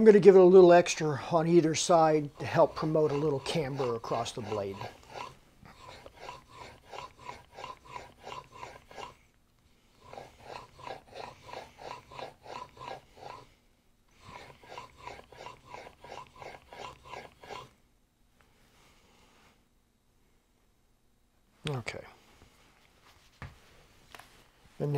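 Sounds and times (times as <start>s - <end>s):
blade rubbing on whetstone: 1.8s - 9.1s, 10.0s - 13.5s, 14.2s - 17.7s.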